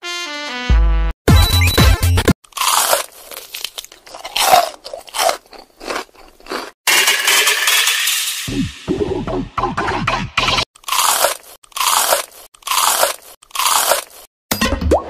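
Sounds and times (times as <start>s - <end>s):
electronic music: 0.0s - 2.3s, 7.2s - 10.6s.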